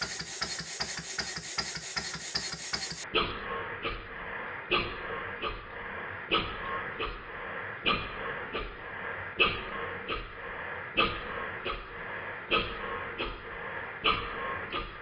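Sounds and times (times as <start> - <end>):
steam engine exhaust puffing: 0.0 - 3.0.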